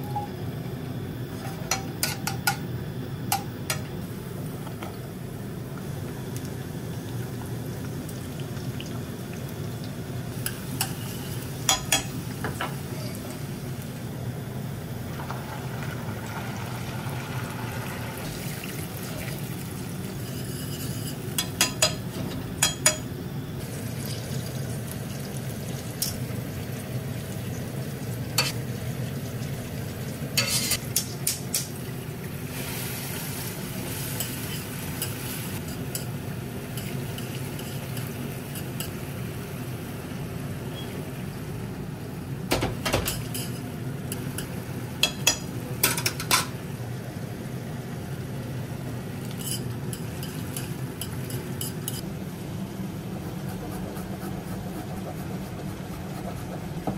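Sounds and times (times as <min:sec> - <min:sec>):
soft sizzle: 0:00.0 - 0:53.4
steady low hum: 0:30.1 - 0:56.9.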